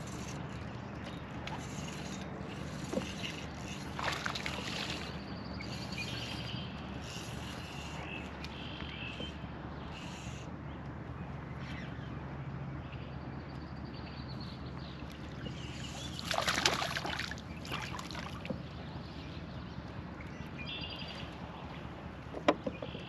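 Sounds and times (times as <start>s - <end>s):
water and boat noise: 0.0s - 23.0s
bird chirping: 18.7s - 21.8s.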